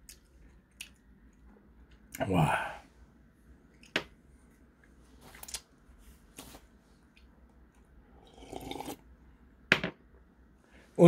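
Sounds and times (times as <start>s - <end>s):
soft swallowing: 8.2s - 9.0s.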